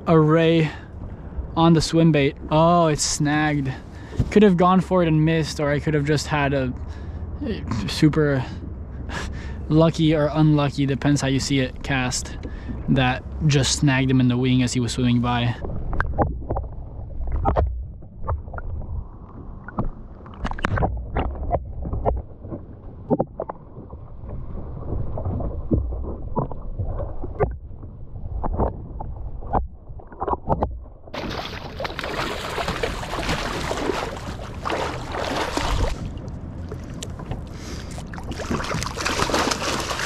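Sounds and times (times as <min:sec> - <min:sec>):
sharp underwater clicks and knocks: 0:15.6 - 0:27.8, 0:28.4 - 0:34.8
water splashing against kayak: 0:15.6 - 0:40.0
wind on microphone: 0:32.1 - 0:40.0.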